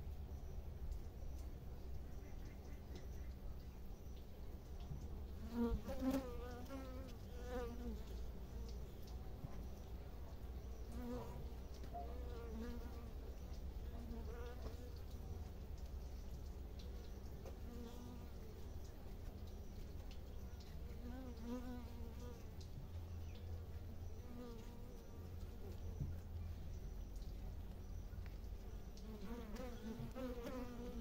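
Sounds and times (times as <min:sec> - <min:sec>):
low hum of bee colony: 0:00.0 - 0:31.0
single bees buzzing close: 0:05.4 - 0:08.2, 0:29.0 - 0:31.0.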